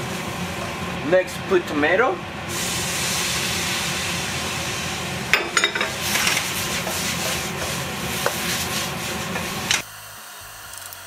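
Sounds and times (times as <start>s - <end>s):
vegetables sizzling: 2.5s - 11.0s
wooden spatula scraping a wok: 5.9s - 9.8s.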